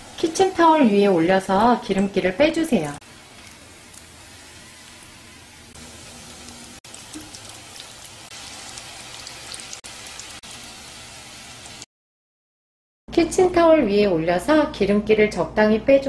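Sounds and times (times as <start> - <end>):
food deep-frying in hot oil: 0.0 - 11.9.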